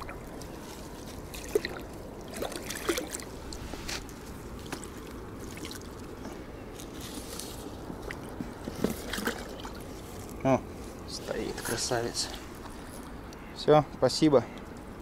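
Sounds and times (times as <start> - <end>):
water splashing: 0.0 - 6.2, 7.8 - 10.3
wet net being handled: 0.0 - 13.2.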